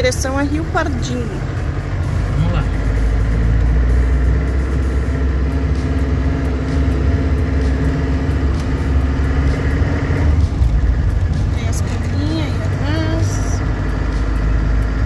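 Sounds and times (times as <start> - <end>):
diesel engine running: 0.0 - 15.0
road noise: 0.0 - 15.0.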